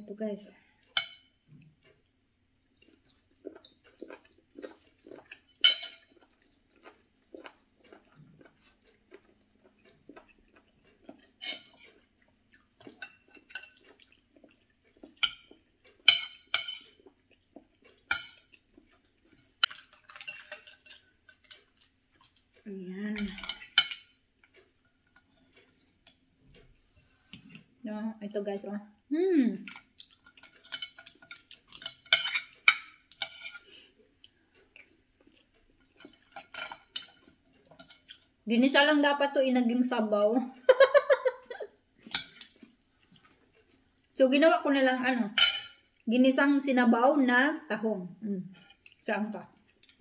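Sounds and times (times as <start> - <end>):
chewing and mouth sounds: 0.8 - 26.8, 29.0 - 38.5, 41.4 - 44.2, 48.5 - 50.0
cutlery clinking on ceramic: 0.9 - 1.4, 5.5 - 6.2, 12.9 - 14.0, 15.1 - 17.0, 18.1 - 18.6, 19.6 - 21.8, 23.2 - 24.2, 29.7 - 33.7, 35.8 - 38.1, 42.0 - 42.6, 45.4 - 45.8
person humming: 29.1 - 29.6.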